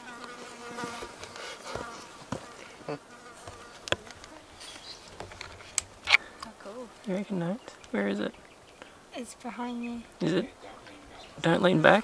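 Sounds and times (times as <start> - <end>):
flying insect buzzing: 0.0 - 6.3
rustles: 0.0 - 12.0.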